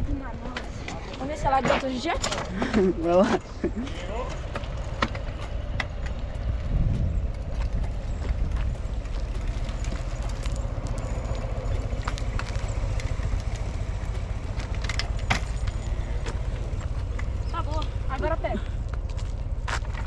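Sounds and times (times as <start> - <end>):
bicycle tyres rolling on asphalt: 0.0 - 20.0
bike clicks and rattles: 0.5 - 18.0
wind rumbling on microphone: 4.6 - 15.3.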